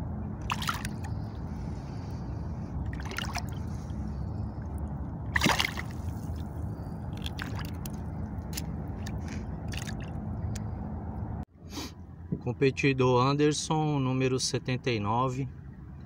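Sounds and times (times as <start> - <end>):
steady low rumble: 0.0 - 14.2
water splashing: 0.4 - 10.2.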